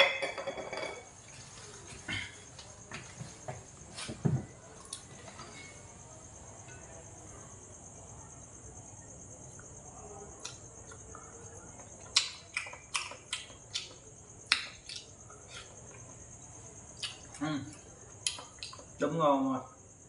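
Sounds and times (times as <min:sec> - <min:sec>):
insect chirring: 0:00.0 - 0:20.0
chopsticks and spoon against food: 0:09.6 - 0:19.0
mouth smacks while eating: 0:12.0 - 0:16.0, 0:17.0 - 0:18.9.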